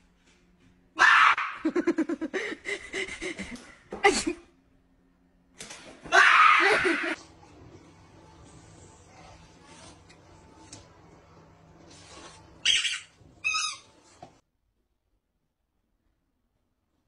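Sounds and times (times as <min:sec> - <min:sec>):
laughter: 0:01.6 - 0:04.4.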